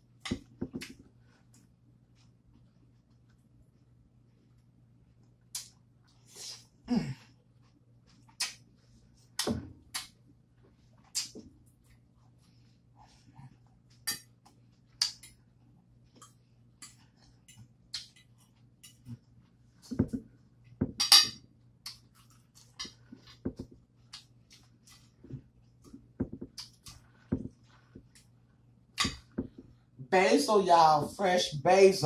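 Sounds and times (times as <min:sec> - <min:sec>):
cutlery clinking against dishes: 0:21.0 - 0:21.4.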